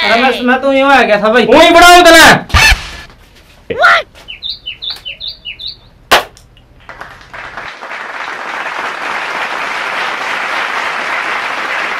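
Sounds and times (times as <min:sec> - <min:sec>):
bird chirps: 0:04.2 - 0:06.0
crowd applause: 0:06.9 - 0:11.9.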